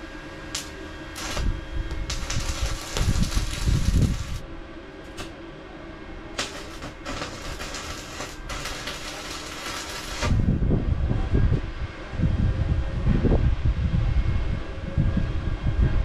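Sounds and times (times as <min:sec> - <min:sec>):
welding arc crackling and hissing: 0:00.0 - 0:04.4, 0:05.0 - 0:05.4, 0:06.4 - 0:10.5
low rumble: 0:00.5 - 0:05.4, 0:06.3 - 0:16.0.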